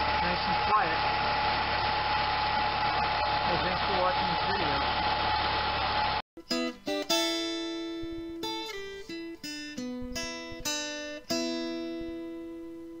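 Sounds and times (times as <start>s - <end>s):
acoustic guitar plucking: 6.4s - 13.0s.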